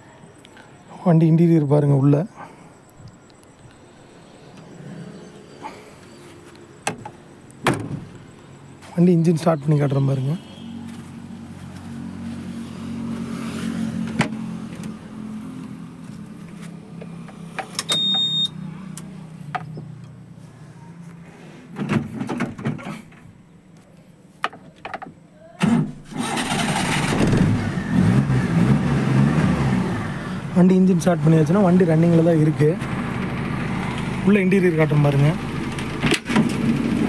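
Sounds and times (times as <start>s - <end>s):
ignition clicks and knocks: 6.8s - 8.1s, 35.7s - 36.7s
short high beep: 17.9s - 18.6s
engine cranking and running: 26.0s - 30.4s, 31.8s - 37.0s.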